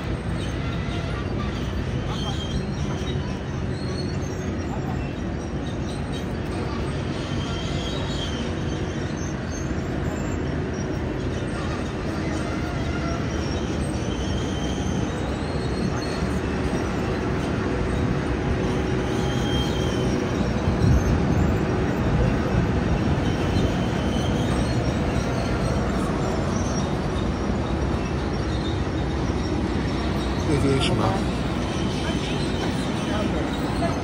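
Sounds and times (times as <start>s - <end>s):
airport ramp drone and rumble: 0.0s - 34.0s.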